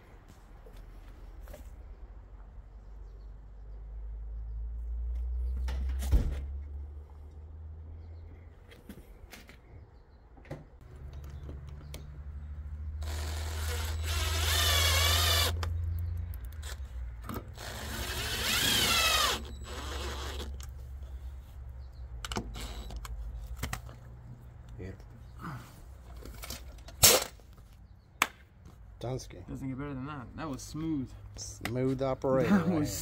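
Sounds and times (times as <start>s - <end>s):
cordless drill driving screws: 13.0s - 15.7s, 17.4s - 20.7s.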